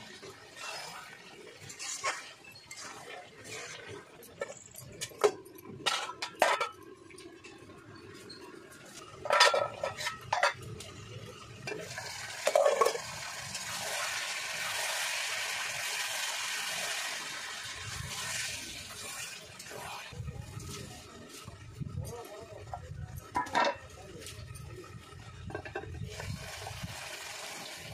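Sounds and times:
metal spatula scraping a pan: 0:00.6 - 0:04.7, 0:09.2 - 0:10.6
hot pan sizzling: 0:09.2 - 0:20.7, 0:25.6 - 0:27.9.

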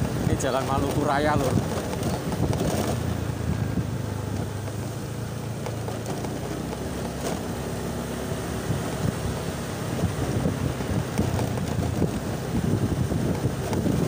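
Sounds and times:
road and wind noise: 0:00.0 - 0:14.0
scooter engine drone: 0:00.0 - 0:14.0.

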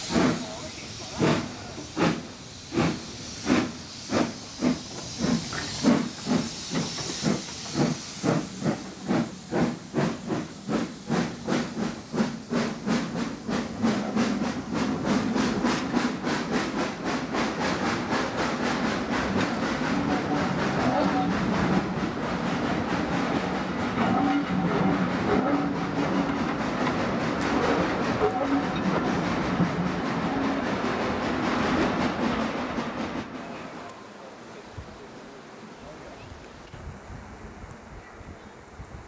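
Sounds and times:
steam locomotive exhaust chuffing: 0:00.0 - 0:33.4
steam hissing: 0:00.0 - 0:33.6
train wheels rumbling: 0:00.0 - 0:34.0.

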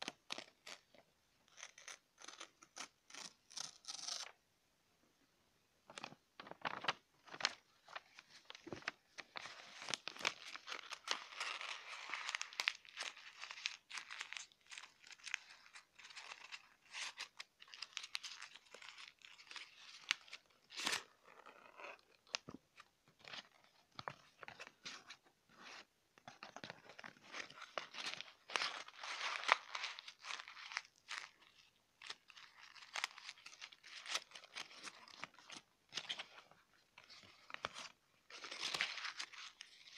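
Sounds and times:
paper crumpling: 0:05.9 - 0:21.0, 0:26.3 - 0:39.9.

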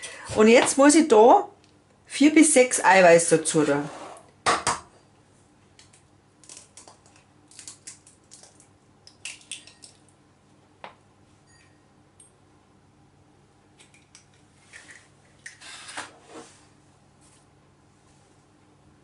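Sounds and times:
eggshells cracking: 0:05.8 - 0:10.2.

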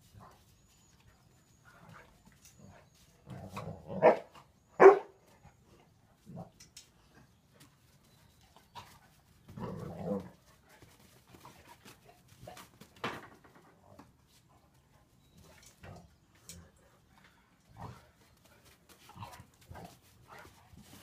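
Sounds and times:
dogs scuffling and paw clicks: 0:06.3 - 0:21.0.

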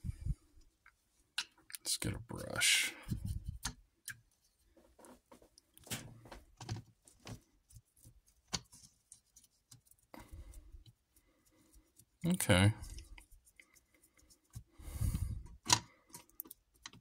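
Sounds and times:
paintbrush scratching on plastic: 0:07.4 - 0:14.8.

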